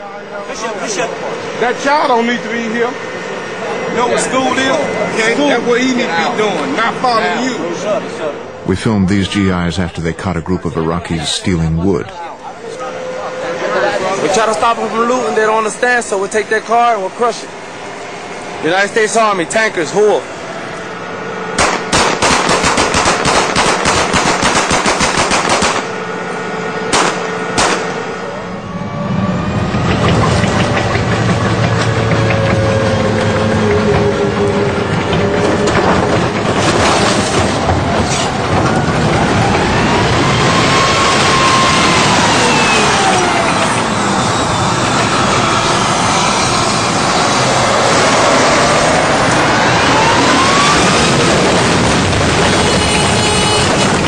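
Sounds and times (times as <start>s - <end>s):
faint whine sliding in pitch: 0.0s - 21.9s, 25.8s - 54.0s
tank rumbling and clattering: 0.0s - 54.0s
loud cracks: 21.6s - 26.0s, 26.9s - 28.0s
tank crushing car: 34.7s - 39.2s.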